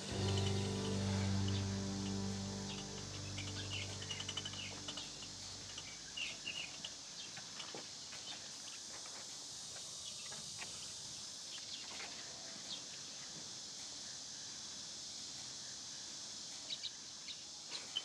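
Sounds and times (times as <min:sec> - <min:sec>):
background music: 0:00.0 - 0:06.0
bird chirps: 0:00.0 - 0:07.3
steady high hiss: 0:00.0 - 0:09.7.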